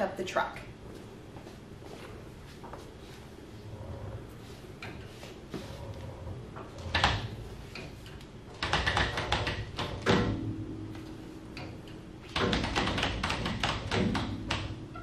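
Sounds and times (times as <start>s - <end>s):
floor jack rapid clicking: 12.3s - 14.7s.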